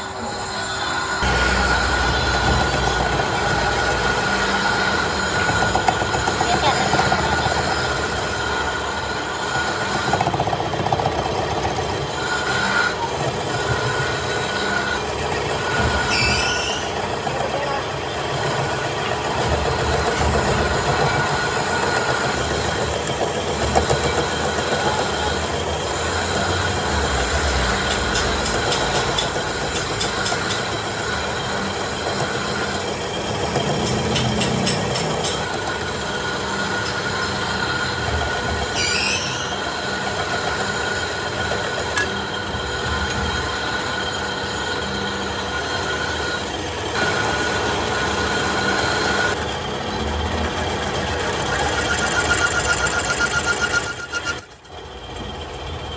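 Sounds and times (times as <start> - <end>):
metal lathe droning: 0.0 - 55.9
short squeaks: 15.9 - 17.0, 38.6 - 39.8, 51.6 - 54.8.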